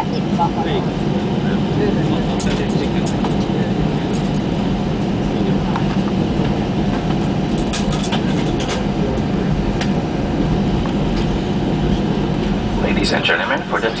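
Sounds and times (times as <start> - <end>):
jet engines idling drone: 0.0 - 14.0
light cabin rattles: 5.4 - 14.0.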